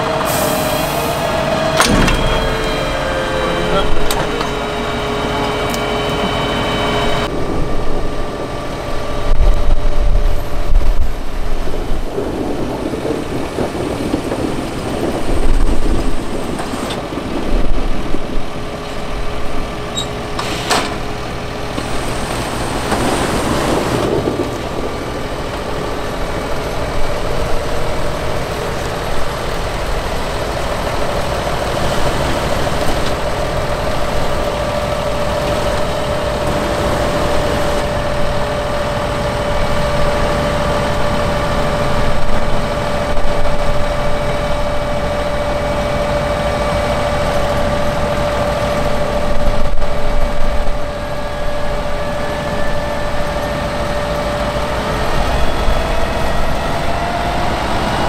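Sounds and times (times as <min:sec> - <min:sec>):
diesel engine running: 0:00.0 - 0:58.0
sharp knock: 0:01.8 - 0:03.4.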